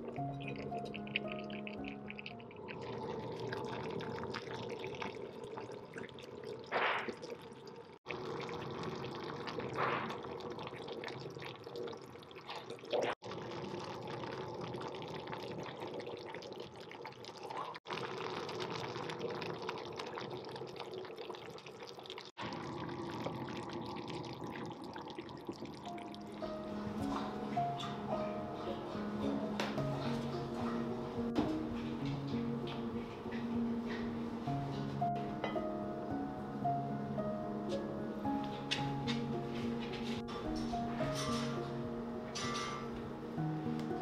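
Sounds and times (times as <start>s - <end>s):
stew bubbling in a pot: 0.0s - 28.1s.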